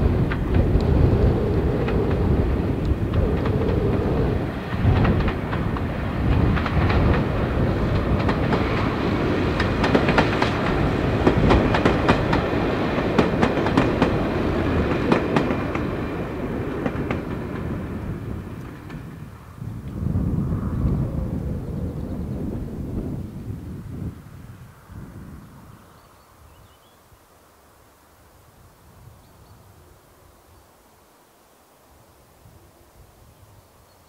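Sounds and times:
train wheels clacking over rail joints: 4.6 - 19.2.

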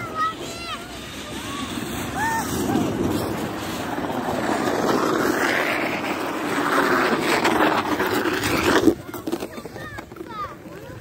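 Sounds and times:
wind buffeting microphone: 1.0 - 9.6.

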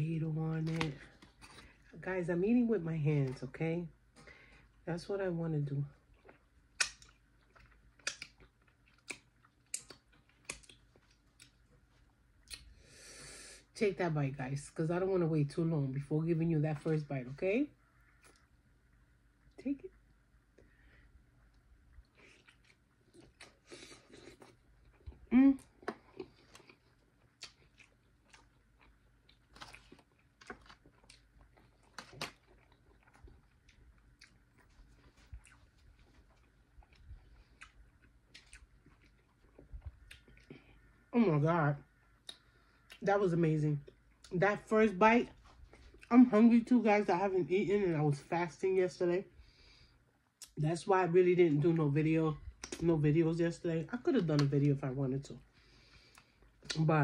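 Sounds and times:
person chewing with lip smacks: 6.2 - 11.6, 12.4 - 12.7, 21.4 - 40.9, 42.2 - 43.0.

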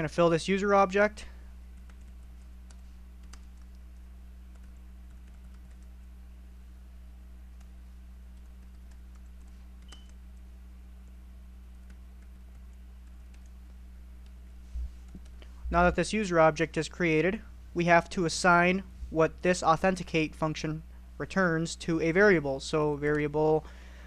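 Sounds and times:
steady low hum: 0.0 - 24.0
computer keyboard keystrokes: 1.8 - 5.9, 8.3 - 14.4, 15.0 - 15.4.

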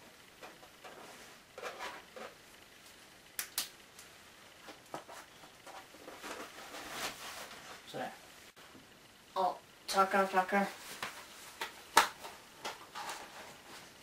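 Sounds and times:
papers rustling: 10.8 - 14.0.

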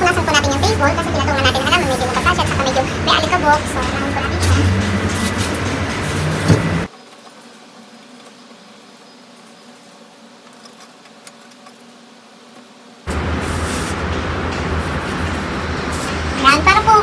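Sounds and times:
loud music: 0.0 - 6.9, 13.1 - 17.0
faint mechanical hum: 0.0 - 17.0.

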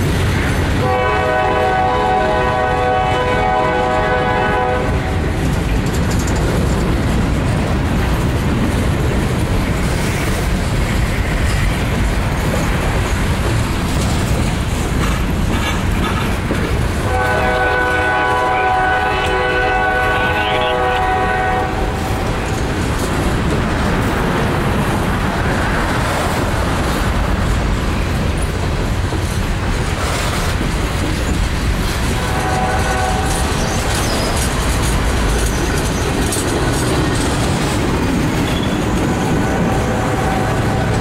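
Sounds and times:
train wheels clattering on rails: 0.0 - 41.0
locomotive horn: 0.8 - 5.4, 17.0 - 22.3, 32.1 - 33.5, 39.3 - 41.0.

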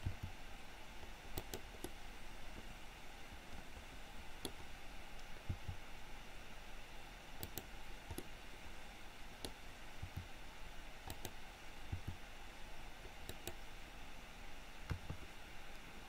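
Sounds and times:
computer mouse clicks: 0.0 - 0.4, 1.0 - 2.0, 4.4 - 4.6, 5.2 - 5.8, 7.4 - 8.3, 9.4 - 10.3, 11.0 - 12.2, 13.0 - 13.6, 14.8 - 15.9
steady low hiss: 0.0 - 16.0
keyboard key presses: 11.1 - 12.2.

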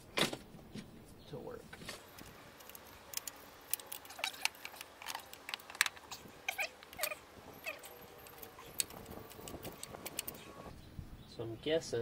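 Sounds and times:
short squeaks: 6.0 - 10.7.

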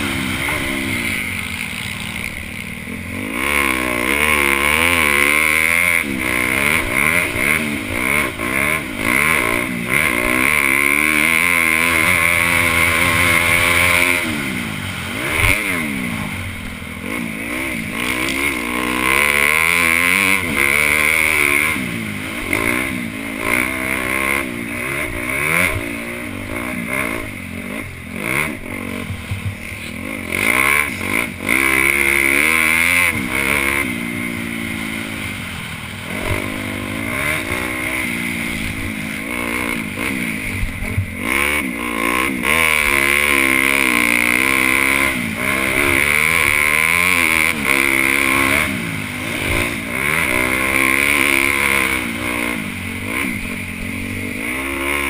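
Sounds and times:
motocross engine revving: 0.0 - 55.0.

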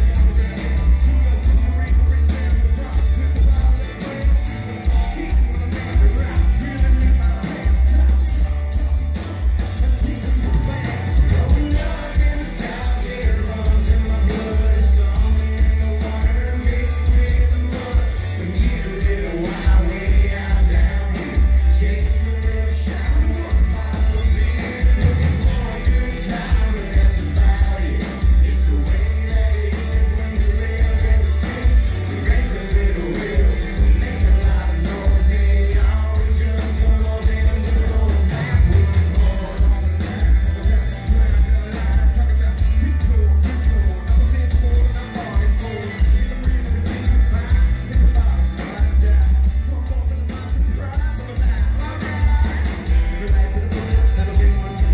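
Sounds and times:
live rock band: 0.0 - 54.9
person singing: 0.0 - 54.9.

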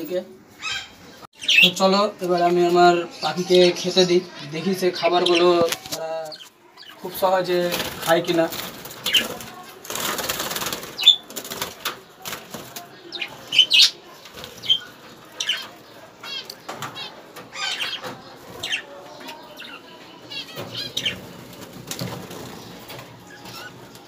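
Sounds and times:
birds chirping and trilling: 0.0 - 24.0
birds fluttering wings: 7.1 - 18.8, 20.4 - 24.0.

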